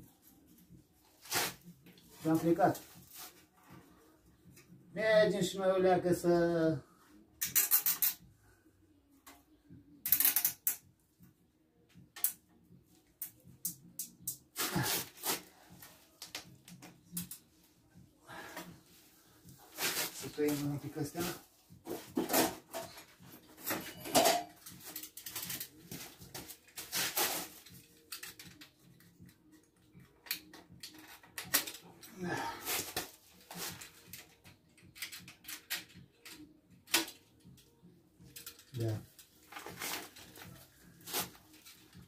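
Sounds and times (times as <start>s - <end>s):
cable ties ratcheting clicks: 7.4s - 8.2s, 10.0s - 10.8s, 34.0s - 37.2s.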